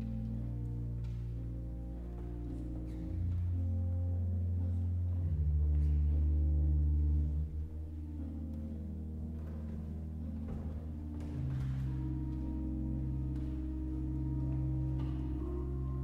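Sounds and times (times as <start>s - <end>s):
pipe organ chords: 0.0s - 16.0s.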